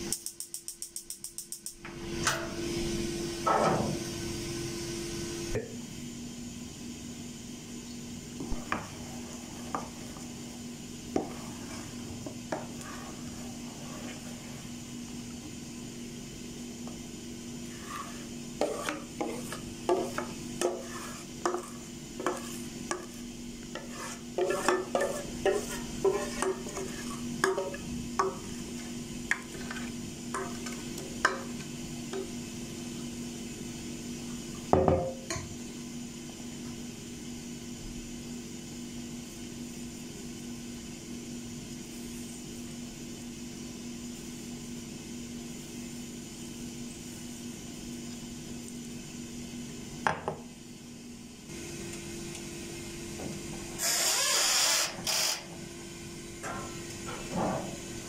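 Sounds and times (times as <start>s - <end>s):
steady low hum: 0.0s - 53.8s
metal spoon scraping bowl: 17.7s - 23.2s, 23.8s - 27.8s.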